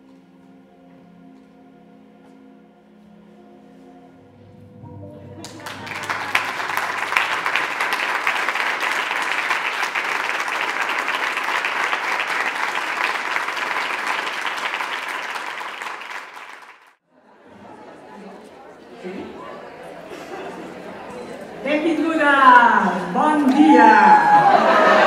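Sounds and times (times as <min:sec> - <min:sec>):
audience applauding: 0:05.4 - 0:17.0, 0:24.2 - 0:25.0.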